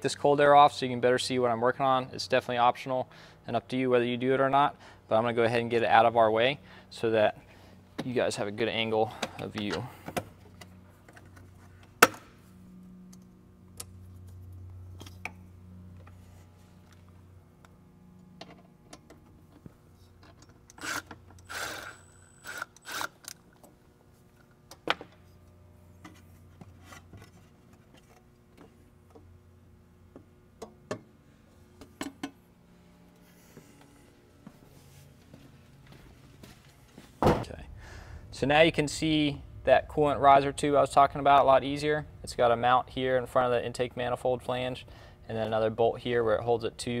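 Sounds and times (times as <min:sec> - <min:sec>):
low steady hum: 0:00.0 - 0:47.0
cordless power tool spurts: 0:20.7 - 0:23.4.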